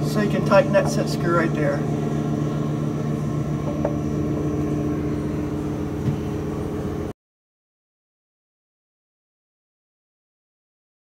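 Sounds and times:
machinery humming: 0.0s - 7.1s.

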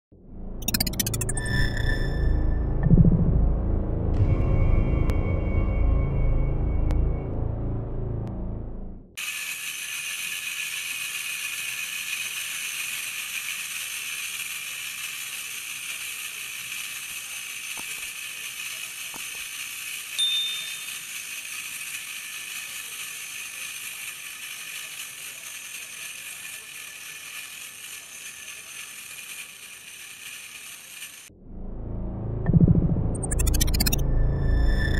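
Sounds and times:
clockwork gears whirring: 0.6s - 3.2s, 9.2s - 31.3s, 33.0s - 34.9s
short high ding: 20.2s - 20.9s.

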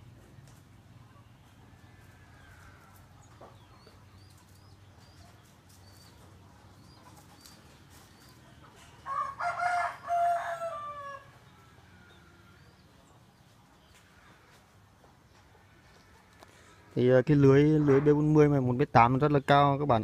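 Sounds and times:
small birds chirping: 0.0s - 20.0s
rooster crowing: 9.0s - 12.7s.

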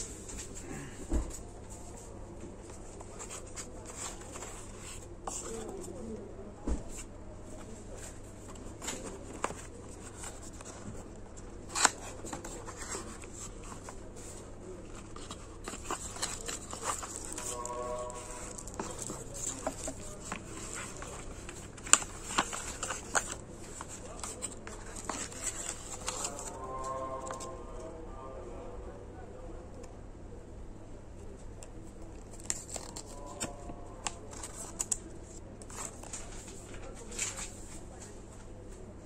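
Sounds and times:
hands handling cardboard box: 11.6s - 26.5s.

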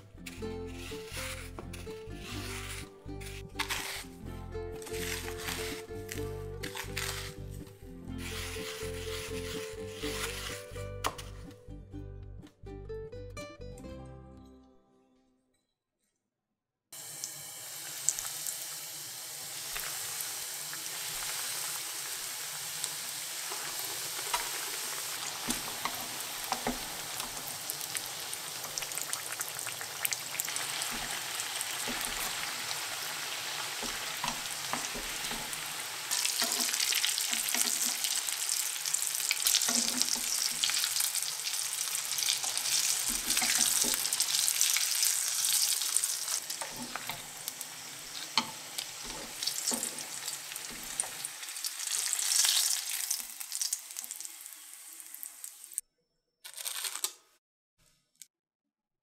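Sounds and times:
food deep-frying in oil: 17.0s - 55.8s.

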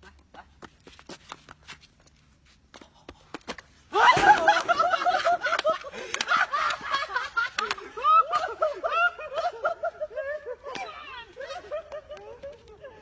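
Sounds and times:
high-pitched laughter: 4.0s - 13.0s.

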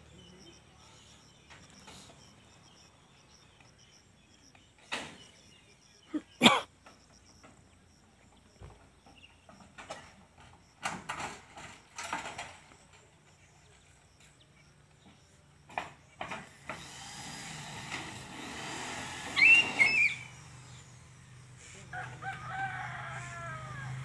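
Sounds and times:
roofers knocking and clattering: 8.6s - 13.1s
rooster crowing: 21.9s - 24.0s.

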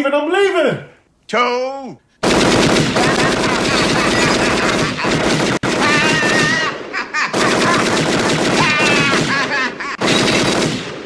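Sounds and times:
submachine gun firing: 2.2s - 11.0s
man crying out: 5.7s - 7.2s, 8.5s - 9.9s.

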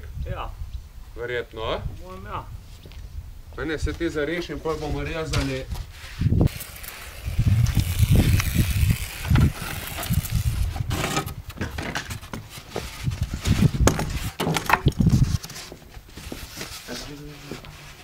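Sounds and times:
foam boards knocking and scraping: 10.7s - 18.0s.

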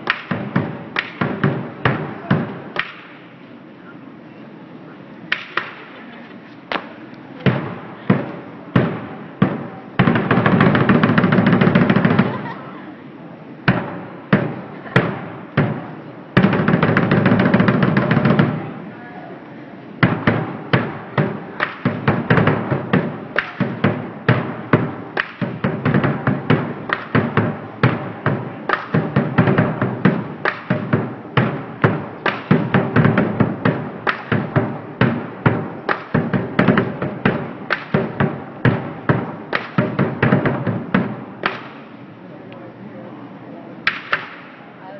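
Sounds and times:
drum beats: 0.0s - 3.3s, 7.4s - 12.6s, 13.7s - 18.7s, 20.0s - 42.1s.

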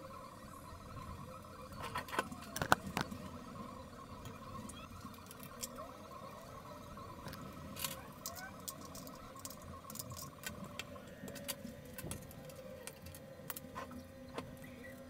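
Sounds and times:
faint steady hum: 0.0s - 15.0s
small metal parts clicking: 7.3s - 13.7s.

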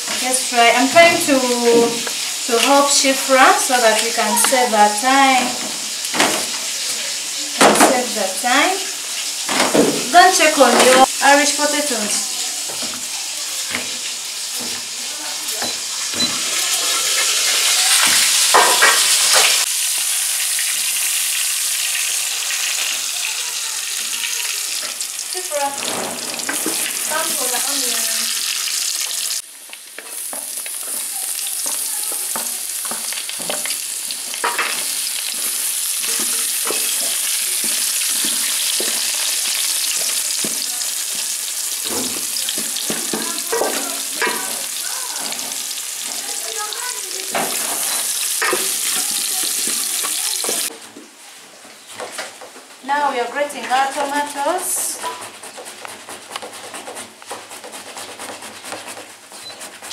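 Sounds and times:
potatoes and onions sizzling: 0.0s - 59.9s
wooden spoon stirring: 25.6s - 41.6s, 51.8s - 59.9s.

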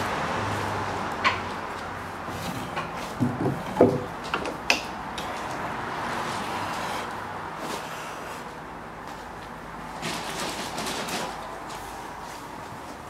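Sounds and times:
wooden and metallic knocks: 2.7s - 4.8s.

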